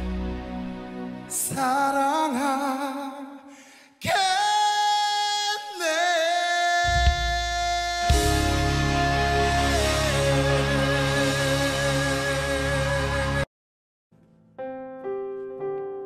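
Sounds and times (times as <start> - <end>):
low bass: 0.0 - 1.3, 6.9 - 13.4
song playing: 7.0 - 13.5
voice singing wavering notes: 7.8 - 13.4.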